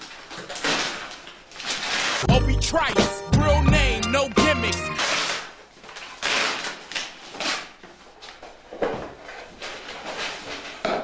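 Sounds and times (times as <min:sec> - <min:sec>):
cardboard rustling and scraping: 0:00.0 - 0:02.3, 0:05.0 - 0:11.0.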